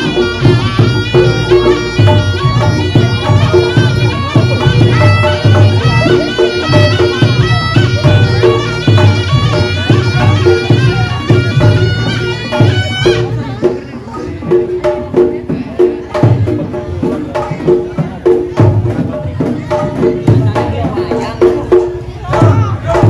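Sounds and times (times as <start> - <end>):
drums and gongs beat: 0.0 - 23.0
shawm melody: 0.0 - 23.0.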